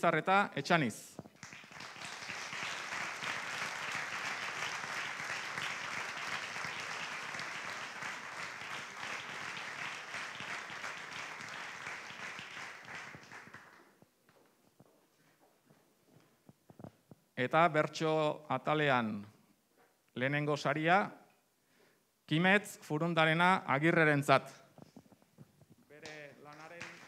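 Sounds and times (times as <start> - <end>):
audience applauding: 1.3 - 13.9, 26.0 - 27.0.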